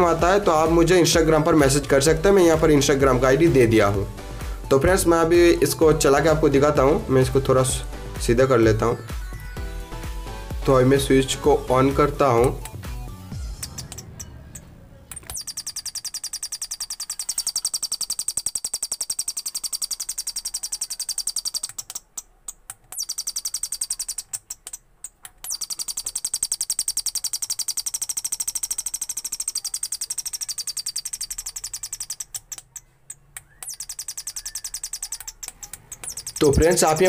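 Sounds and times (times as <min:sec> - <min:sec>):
electronic bird-like tweets: 0:13.3 - 0:22.2, 0:22.9 - 0:24.3, 0:25.4 - 0:37.0.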